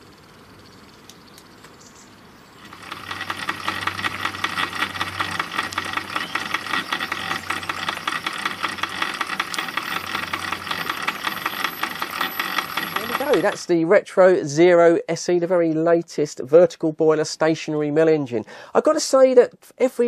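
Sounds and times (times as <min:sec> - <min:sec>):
model steam engine clatter: 0:02.6 - 0:13.7.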